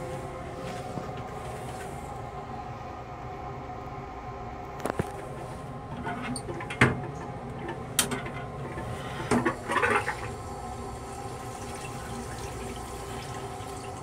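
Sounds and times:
rail car hum: 0.0 - 14.0
toilet flushing: 5.9 - 14.0.

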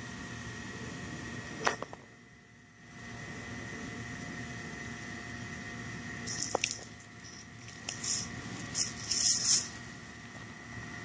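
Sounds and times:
knife scraping carcass: 6.3 - 9.8.

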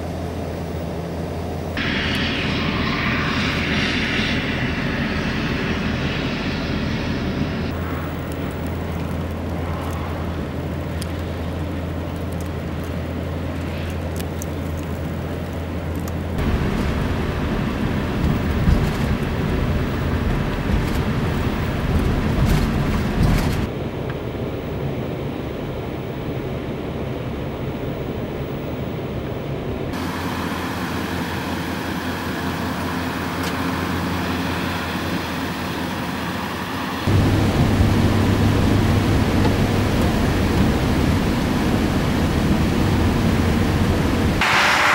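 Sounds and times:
vehicle rumble: 0.0 - 44.9
wind-blown snow: 1.8 - 44.9
vehicle engine idling: 30.0 - 44.4.

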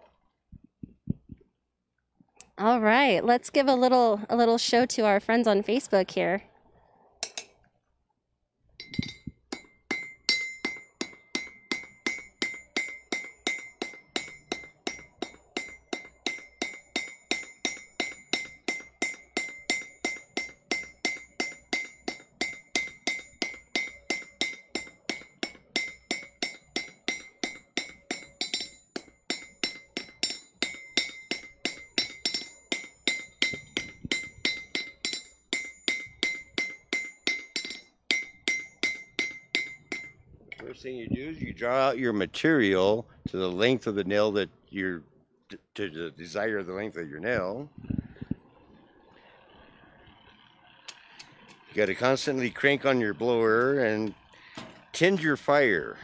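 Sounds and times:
hammer striking hot steel on anvil: 7.2 - 7.5, 8.8 - 40.6.

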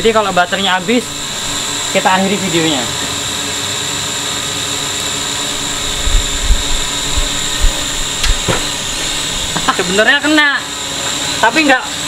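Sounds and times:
drone propeller whine: 0.0 - 12.0
dull low thumps: 5.6 - 9.2.

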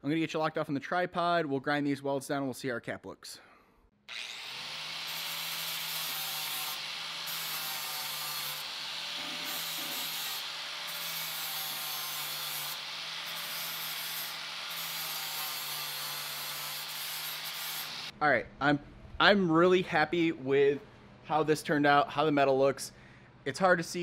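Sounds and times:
angle grinder grinding steel: 4.1 - 18.1.

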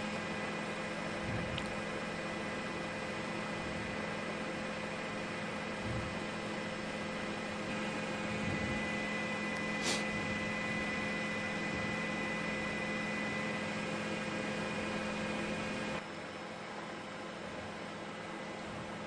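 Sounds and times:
low electrical hum: 0.0 - 19.0
faint steady tones: 1.9 - 19.0
short high hiss: 9.8 - 10.1.

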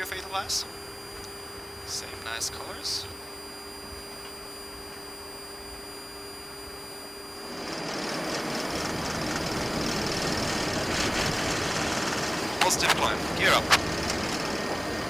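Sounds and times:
cockpit hum with high whine: 0.0 - 15.0
jet engines rushing at takeoff: 0.0 - 15.0.

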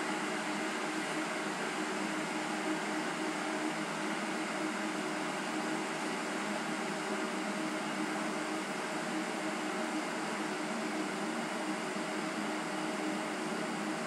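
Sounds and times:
steady hum and hiss: 0.0 - 14.0.

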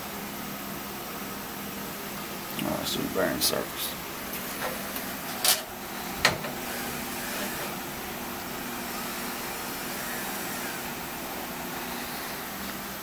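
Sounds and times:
motor humming: 1.6 - 13.0.

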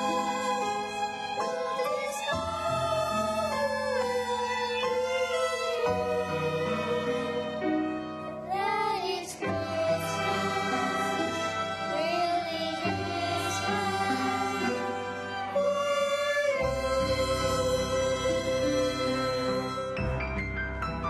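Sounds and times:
violins playing slow melody: 0.0 - 20.2.

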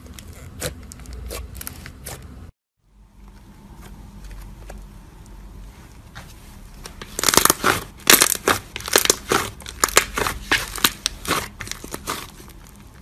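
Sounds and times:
slime crackling and popping: 7.0 - 12.8.

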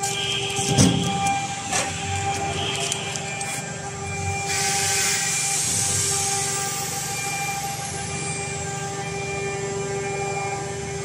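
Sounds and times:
workshop machinery hum: 0.0 - 11.0
air hissing: 4.4 - 8.1.

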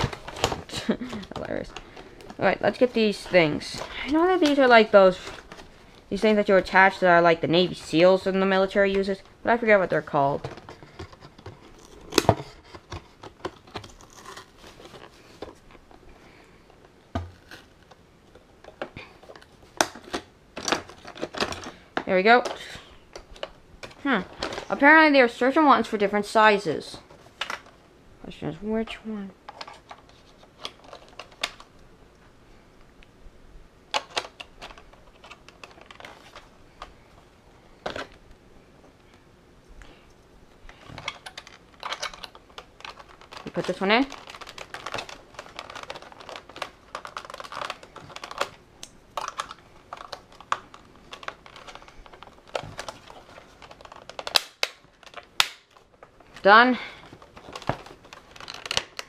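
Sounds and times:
rustle of cardboard and plastic: 10.4 - 22.0, 29.4 - 31.7, 34.1 - 38.2, 40.6 - 48.6, 49.2 - 59.0.

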